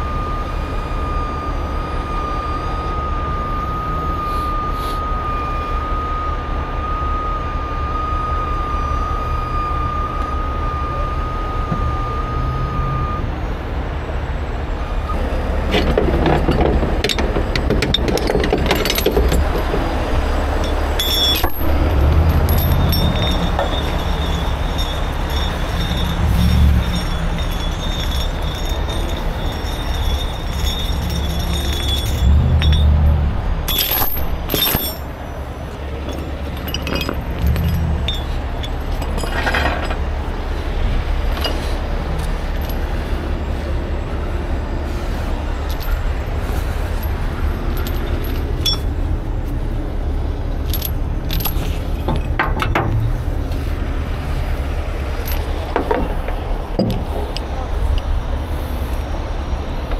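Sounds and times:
diesel truck engine running: 0.0 - 59.9
chain clinking and rattling: 15.7 - 43.3, 45.5 - 49.6, 50.4 - 53.6, 54.9 - 58.2.

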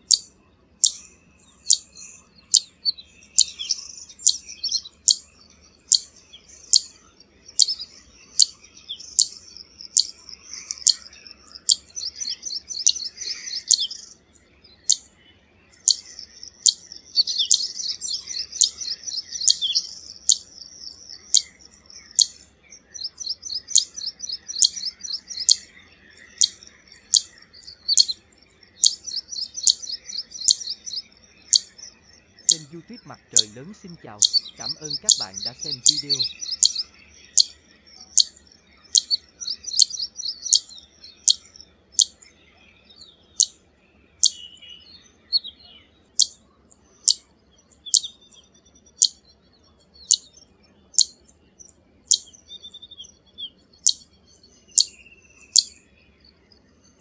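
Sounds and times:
fast high bird twittering: 0.0 - 14.2, 15.8 - 42.2
bird calling sharp high notes: 32.4 - 37.5.

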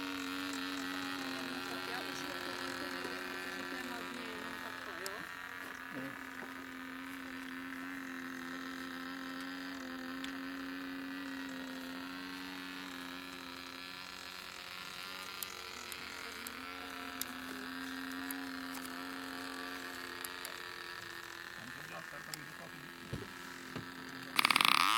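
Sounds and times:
model airplane motor buzzing: 0.0 - 24.9.

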